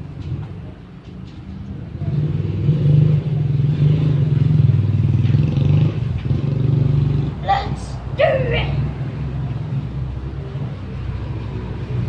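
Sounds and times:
engine rumbling: 0:00.0 - 0:12.0.

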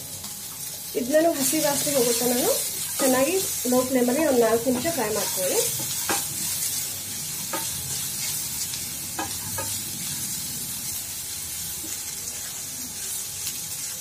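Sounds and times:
vegetables sizzling in oil: 0:00.0 - 0:14.0
spatula scraping and knocking pan: 0:04.6 - 0:06.8, 0:07.4 - 0:08.3, 0:09.1 - 0:09.8.

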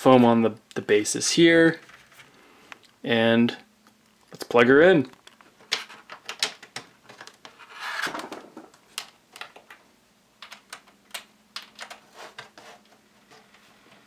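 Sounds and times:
rustling scrape: 0:07.5 - 0:08.4, 0:12.0 - 0:14.0.

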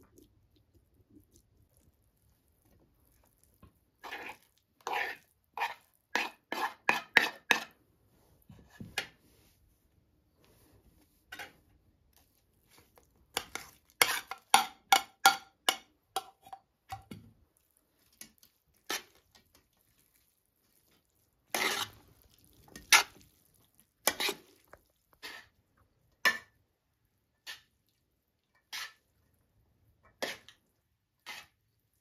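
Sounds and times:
spoon scraping a bowl: 0:04.0 - 0:07.8, 0:11.3 - 0:11.6, 0:13.4 - 0:17.1, 0:21.5 - 0:22.0, 0:24.0 - 0:25.6, 0:27.4 - 0:27.7, 0:28.6 - 0:29.1, 0:30.1 - 0:30.6, 0:31.2 - 0:31.6
cutlery clinking against a pot: 0:04.9 - 0:07.8, 0:13.4 - 0:17.2, 0:26.2 - 0:26.6.

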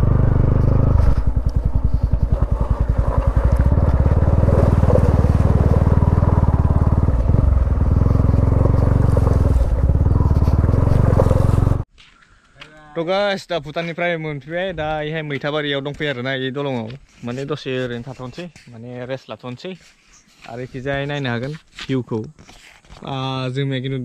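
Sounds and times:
motorcycle engine running: 0:00.0 - 0:11.9.

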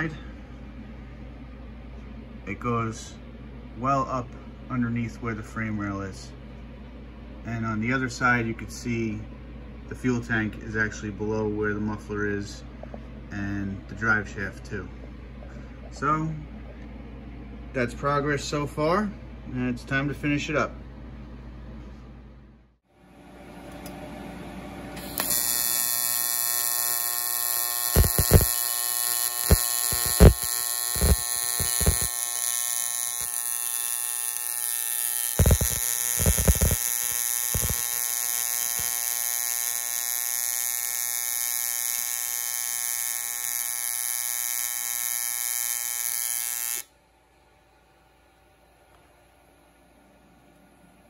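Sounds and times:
welding arc buzzing: 0:25.0 - 0:46.9
welding crackles and pops: 0:25.0 - 0:46.9.

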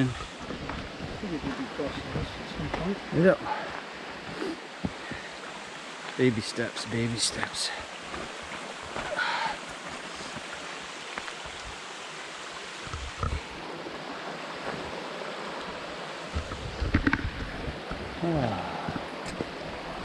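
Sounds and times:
brook running over rocks: 0:00.0 - 0:20.0
footstep thumps on trail: 0:04.8 - 0:05.3
thumps and knocks: 0:16.4 - 0:18.0.

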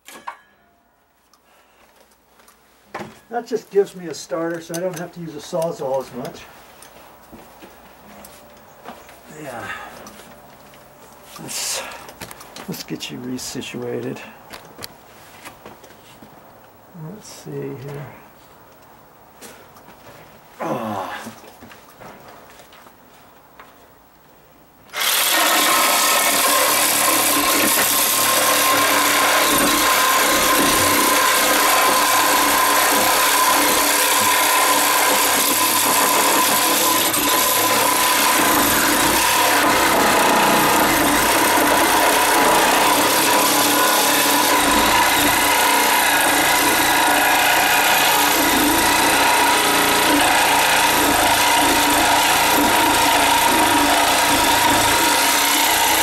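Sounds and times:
reciprocating saw cutting wood: 0:24.9 - 0:56.0.

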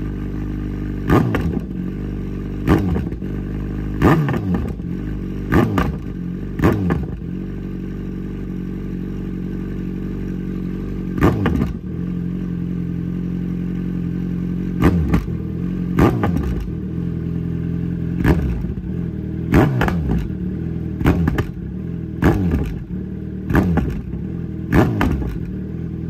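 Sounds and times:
motorcycle engine idling and revving: 0:00.0 - 0:26.0
exhaust pops: 0:01.1 - 0:01.8, 0:04.0 - 0:07.3, 0:11.2 - 0:11.8, 0:14.8 - 0:15.4, 0:16.0 - 0:16.8, 0:18.2 - 0:20.4, 0:21.0 - 0:21.6, 0:22.2 - 0:22.9, 0:23.5 - 0:25.6.

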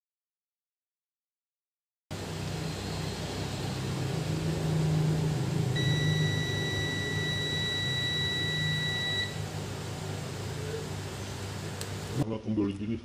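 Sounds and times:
low steady hum: 0:02.1 - 0:12.3
multimeter continuity beep: 0:05.8 - 0:12.1.

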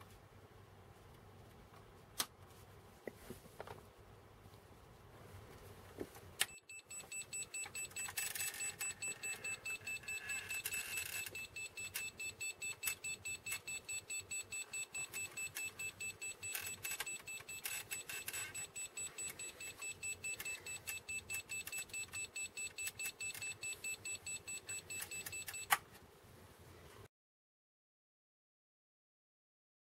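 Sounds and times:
high-pitched toy beeping: 0:06.5 - 0:25.7.

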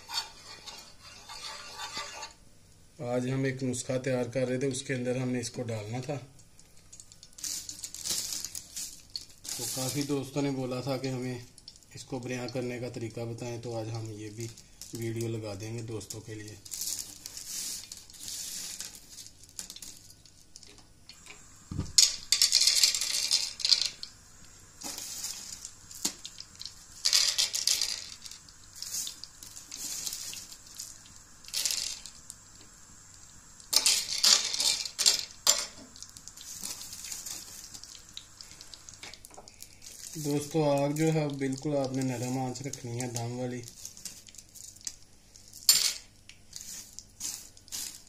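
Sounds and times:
steel spoon moving fruits: 0:00.0 - 0:02.4
short hissing bursts: 0:16.8 - 0:19.3, 0:21.1 - 0:40.6
dried fruits clattering on griddle: 0:21.7 - 0:24.1, 0:24.8 - 0:30.5, 0:31.5 - 0:32.1, 0:33.7 - 0:35.9.

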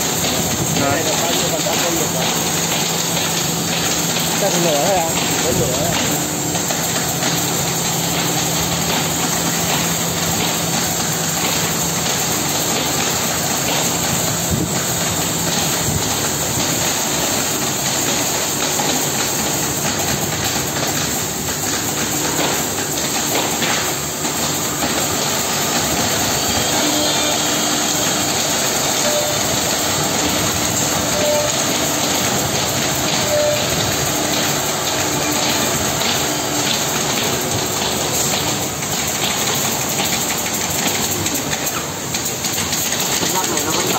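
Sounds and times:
cnc router cutting wood: 0:26.0 - 0:28.4.

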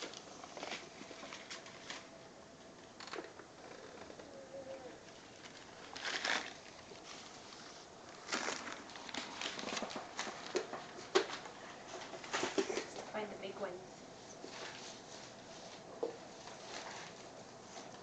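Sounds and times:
newspaper rustling and crinkling: 0:00.0 - 0:02.2, 0:05.1 - 0:13.0, 0:14.4 - 0:18.0.

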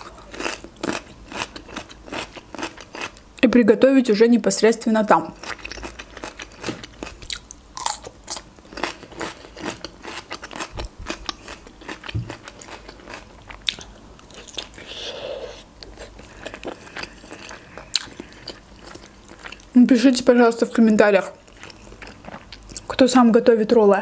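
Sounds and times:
close chewing crunches: 0:05.4 - 0:14.9.

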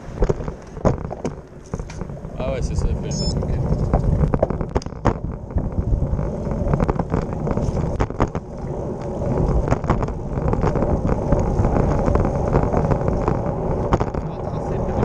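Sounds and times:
tyre and road noise: 0:00.0 - 0:15.0
wind rumbling on microphone: 0:00.0 - 0:15.0
bike rattling clicks: 0:03.6 - 0:15.0.

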